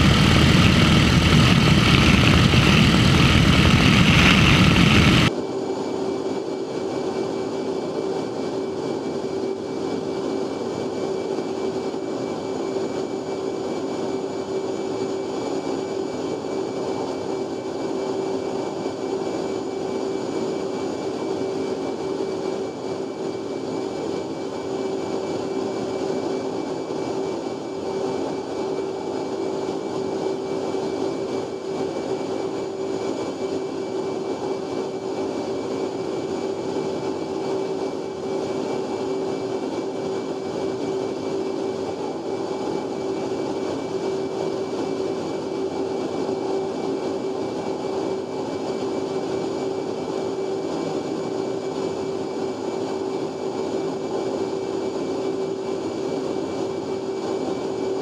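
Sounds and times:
wind rush: 0.0 - 5.3
jet cockpit drone: 0.0 - 58.0
propeller plane engine: 0.0 - 58.0.

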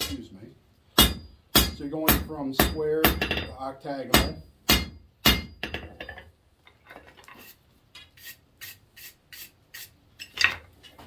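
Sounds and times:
hammer striking hot steel on anvil: 1.0 - 6.1.

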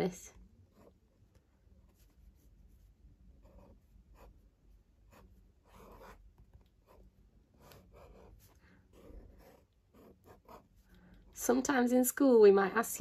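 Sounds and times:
pen scratching on paper: 1.8 - 10.8.

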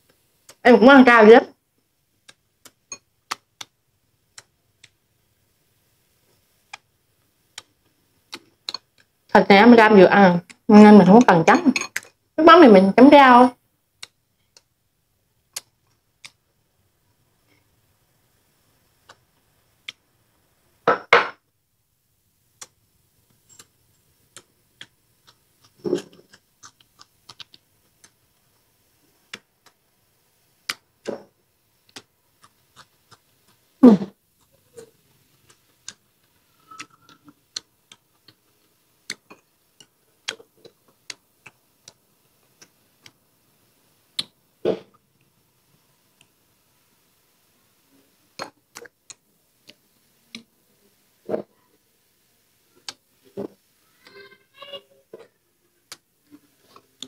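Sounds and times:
wet chewing and lip smacks: 23.6 - 28.2, 31.8 - 33.8.

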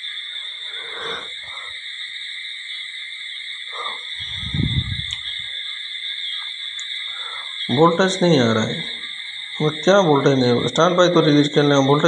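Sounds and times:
high-pitched hiss: 0.0 - 12.0
microphone handling rumble: 4.2 - 5.5.

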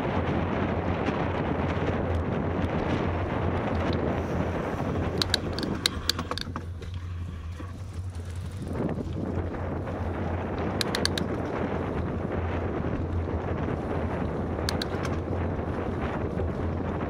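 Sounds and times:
wind rushing over microphone: 0.0 - 17.0
sharp clicks: 4.9 - 8.8, 10.6 - 11.5, 14.6 - 15.3.

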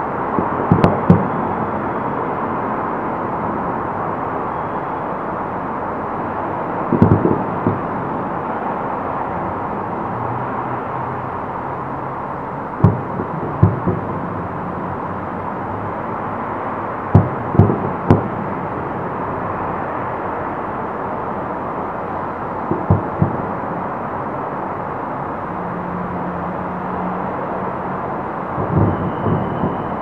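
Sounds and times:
distant firework shells bursting: 0.4 - 1.4, 6.9 - 7.9, 17.1 - 18.4, 22.7 - 23.6, 28.6 - 30.0.

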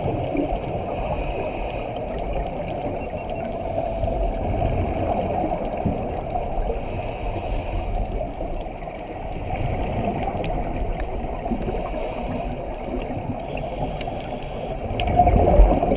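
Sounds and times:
low rush of water underwater: 0.0 - 15.9
regulator breathing and bubbles: 0.0 - 15.9.

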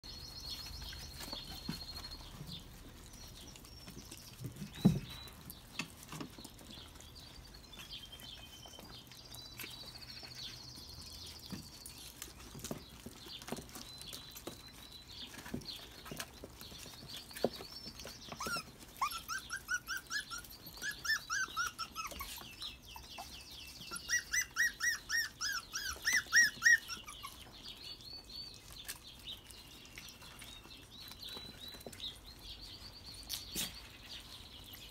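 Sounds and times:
puppies eating meat: 0.0 - 34.9
puppies' short high calls: 18.3 - 23.3, 23.9 - 27.6.

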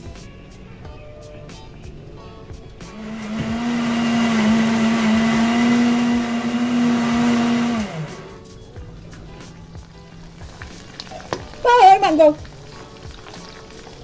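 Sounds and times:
blender motor winding down: 2.9 - 8.4
electric blender running: 2.9 - 8.4.

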